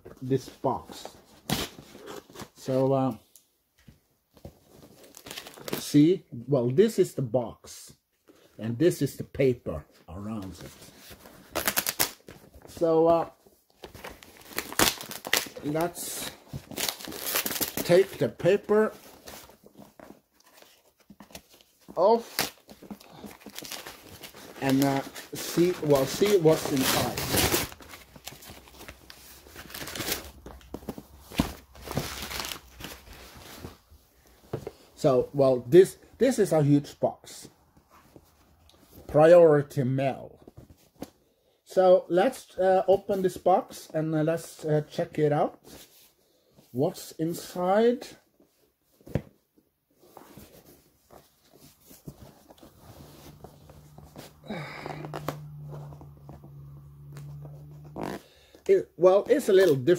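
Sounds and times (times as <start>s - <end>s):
wrapping paper tearing and crinkling: 11.4s - 12.3s, 14.0s - 18.2s, 21.5s - 30.7s, 31.4s - 33.8s, 52.0s - 58.3s
cardboard box rustling: 18.9s - 34.8s, 50.0s - 58.1s.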